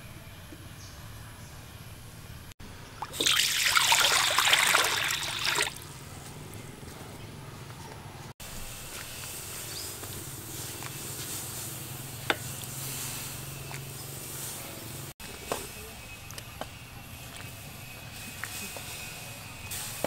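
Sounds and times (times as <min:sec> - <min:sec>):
water splashing into a wok: 0:03.0 - 0:05.8
water boiling: 0:03.0 - 0:05.9.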